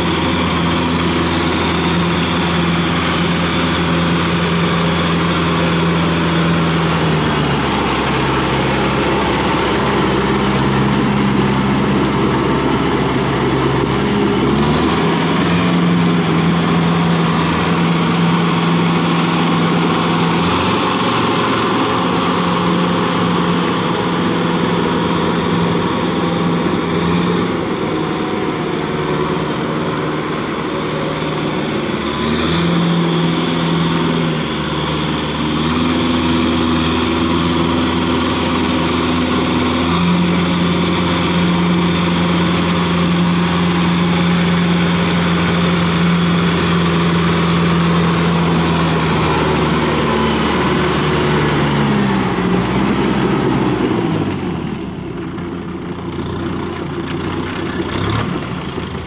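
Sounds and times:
tractor diesel engine under load: 0:00.0 - 0:59.0.

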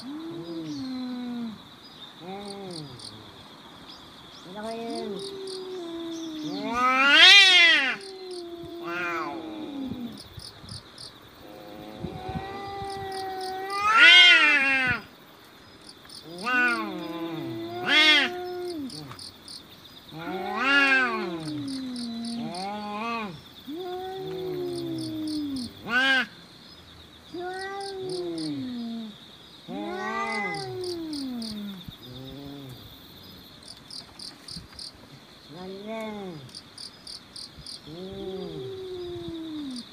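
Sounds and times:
cats yowling: 0:04.5 - 0:10.2, 0:11.4 - 0:15.1, 0:16.2 - 0:19.2, 0:20.1 - 0:26.3, 0:27.3 - 0:32.8.

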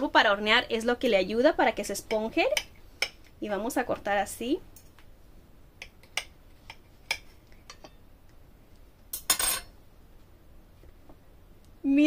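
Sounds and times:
cutlery clinking: 0:09.1 - 0:09.7
cutlery scraping a plate: 0:09.2 - 0:09.7.

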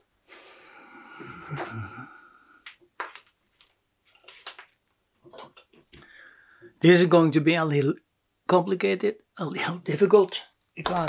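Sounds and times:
breathy hiss: 0:00.2 - 0:02.6.

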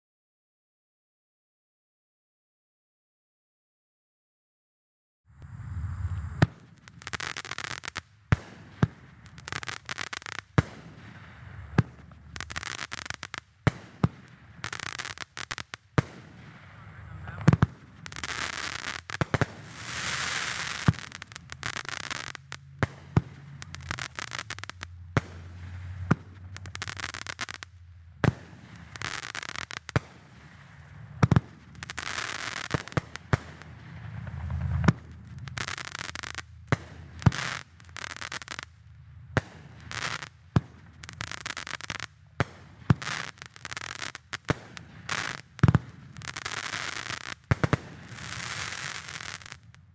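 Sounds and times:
fireworks hissing and crackling: 0:05.4 - 0:49.9
fireworks bangs: 0:05.5 - 0:38.7, 0:39.3 - 0:49.9.

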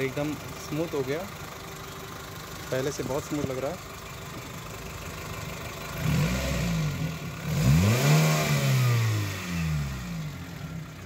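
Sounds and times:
car engine revving: 0:05.8 - 0:11.0.

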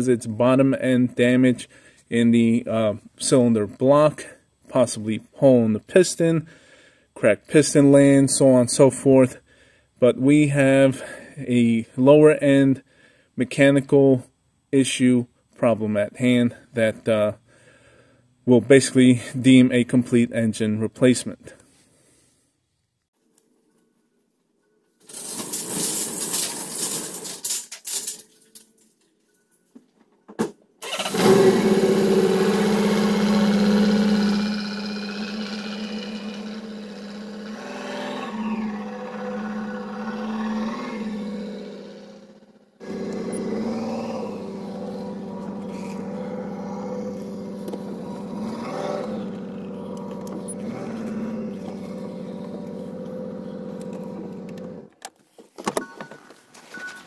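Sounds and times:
diesel engine starting and running: 0:30.8 - 0:54.9
loud noise: 0:30.9 - 0:53.0.

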